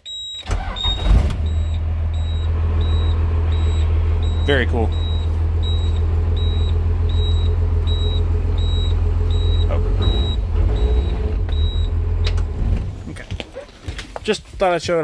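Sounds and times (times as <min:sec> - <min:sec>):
high warning beeper: 0:00.1 - 0:12.0
diesel engine idling: 0:00.4 - 0:13.1.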